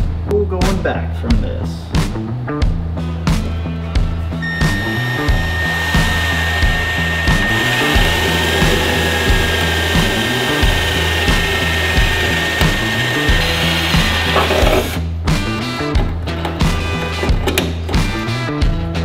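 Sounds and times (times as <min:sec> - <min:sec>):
background music with a beat: 0:00.0 - 0:19.0
cordless drill whining: 0:04.4 - 0:15.0.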